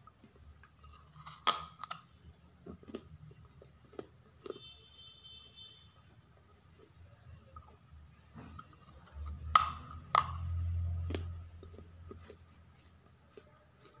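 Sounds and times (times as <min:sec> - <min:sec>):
clay pot cracking: 0:00.0 - 0:04.5, 0:06.7 - 0:12.4
crunching chewing of clay: 0:00.0 - 0:14.0.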